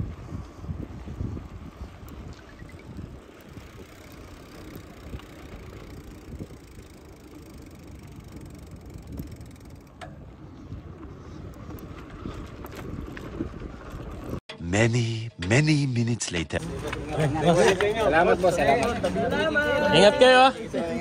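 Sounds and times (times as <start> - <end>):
wind rumbling on microphone: 0.0 - 14.4.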